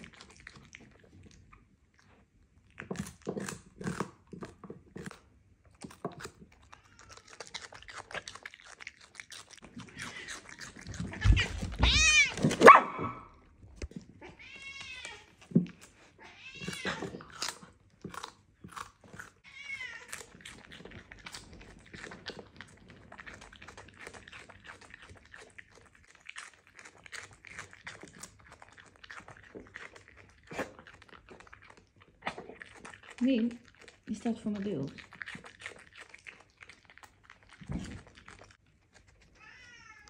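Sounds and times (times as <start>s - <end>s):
dog chewing leaves: 0.0s - 1.4s, 2.1s - 12.9s, 15.3s - 39.4s
cat meowing: 6.6s - 7.6s, 11.1s - 13.2s, 14.2s - 15.3s, 16.2s - 17.3s, 19.4s - 20.4s, 39.4s - 40.0s.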